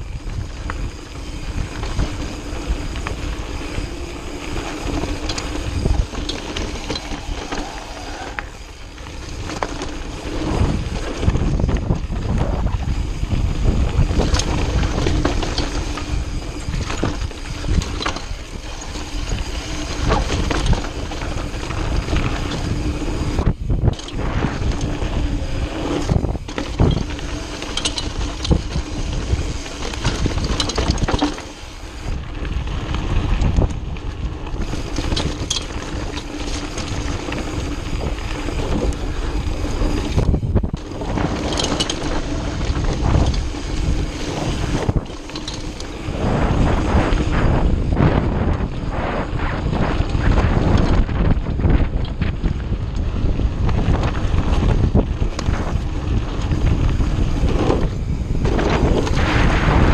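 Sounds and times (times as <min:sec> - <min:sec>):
bike chain and frame rattling: 0:00.0 - 0:59.9
tyres crunching over gravel: 0:00.0 - 0:59.9
wind buffeting microphone: 0:00.0 - 0:59.9.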